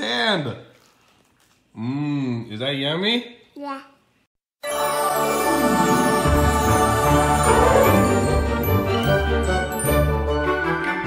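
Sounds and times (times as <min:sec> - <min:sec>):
background theme music: 0:04.6 - 0:11.0.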